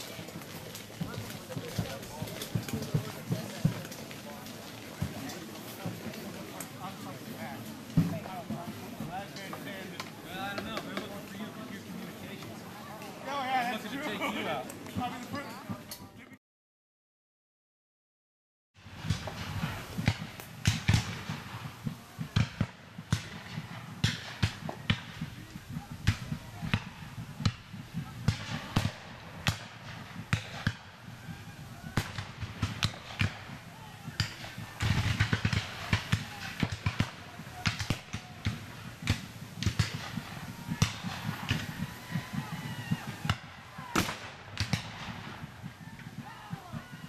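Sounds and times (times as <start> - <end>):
outdoor background noise: 0.0 - 16.4, 18.8 - 47.0
black-powder gunshots: 18.9 - 31.1, 31.8 - 46.3
musket shots: 34.2 - 45.4.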